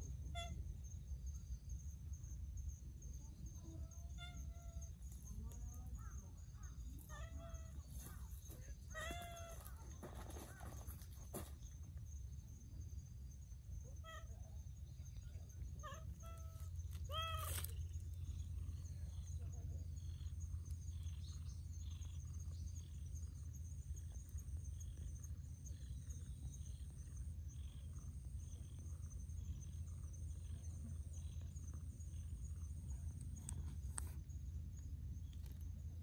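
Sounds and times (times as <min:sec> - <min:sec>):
steady high-pitched hum: 0:00.0 - 0:36.0
cat meowing: 0:15.8 - 0:17.7.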